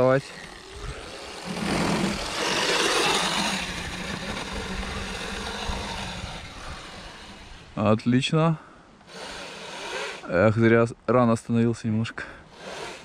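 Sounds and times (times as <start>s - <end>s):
drivetrain and tyre noise: 0.0s - 7.9s
electric motor whine: 0.0s - 7.9s, 9.0s - 10.3s.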